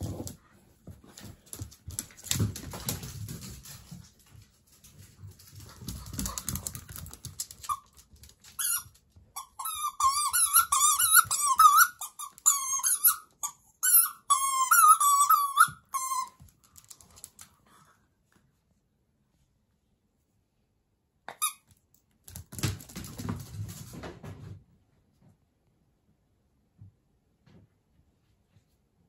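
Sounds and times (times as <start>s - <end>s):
squeaky toy squeaking: 8.6s - 16.4s.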